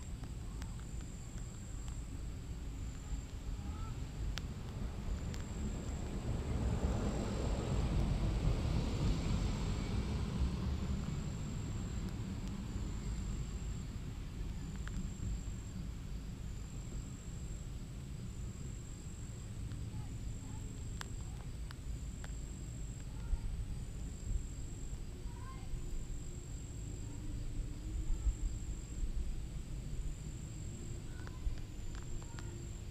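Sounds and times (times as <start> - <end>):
steady low rumble: 0.0 - 32.9
distant passing vehicle: 4.8 - 13.8.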